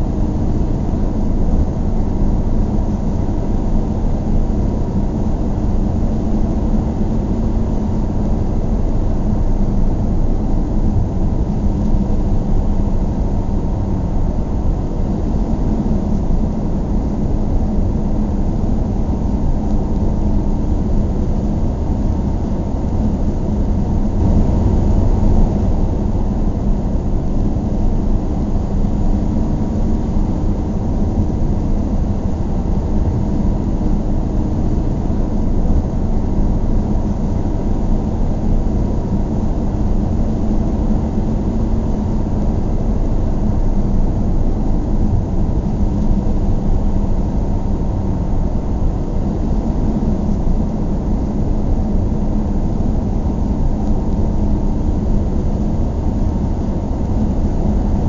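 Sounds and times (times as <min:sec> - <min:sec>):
car engine and tyre rumble: 0:10.3 - 0:36.2.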